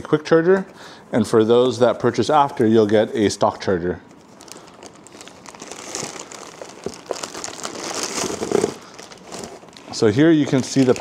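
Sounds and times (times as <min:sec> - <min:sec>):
packaging rustling and crinkling: 0:04.2 - 0:11.0.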